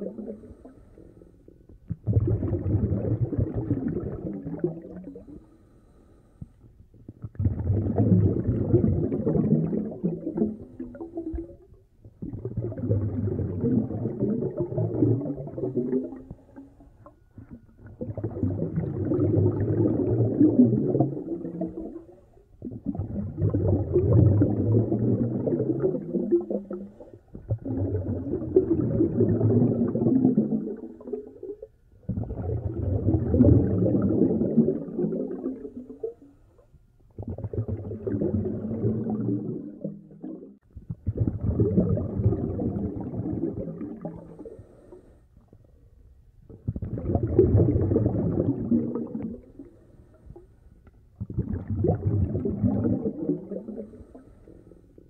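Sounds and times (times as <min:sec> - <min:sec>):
underwater breath bubbling: 0:00.0 - 0:36.4, 0:37.1 - 0:45.7, 0:46.5 - 0:50.6, 0:51.2 - 0:55.0
diver breathing through regulator: 0:05.2 - 0:06.6, 0:44.2 - 0:45.3, 0:53.6 - 0:55.0.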